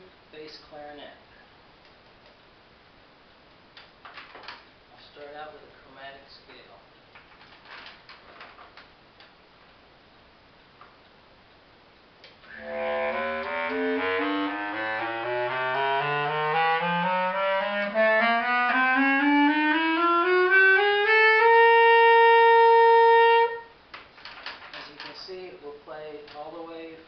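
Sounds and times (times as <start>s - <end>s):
bass clarinet playing a scale: 12.5s - 23.8s.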